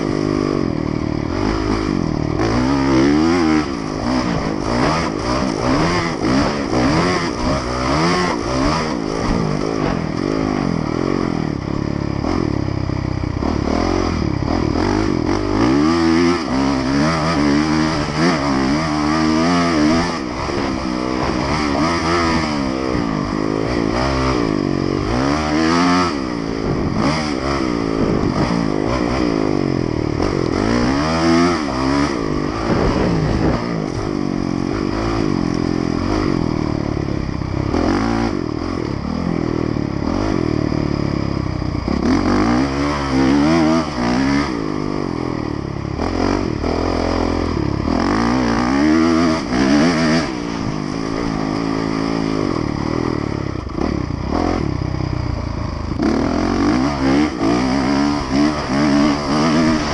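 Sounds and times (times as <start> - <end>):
motocross bike engine revving: 0.0 - 59.9.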